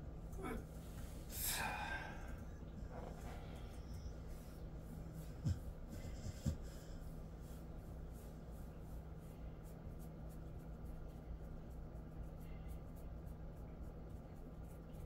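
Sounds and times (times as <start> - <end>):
fingers rubbing through fur: 2.3 - 15.0.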